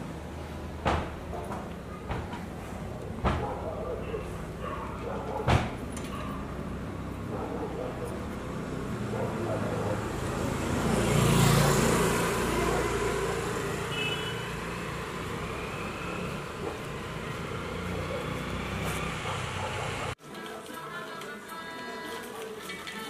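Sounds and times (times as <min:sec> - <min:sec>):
steady traffic hum: 0:00.0 - 0:20.2
vehicle passing close by: 0:02.5 - 0:20.2.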